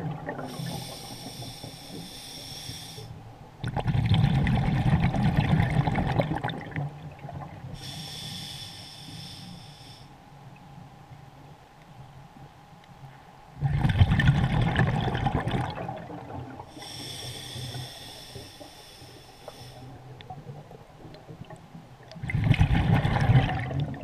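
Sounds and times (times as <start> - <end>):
inhale hiss through regulator: 0.4 - 3.2, 7.8 - 10.2, 16.7 - 20.0
exhaled bubbles rushing: 3.6 - 7.7, 13.6 - 16.7, 22.2 - 24.0.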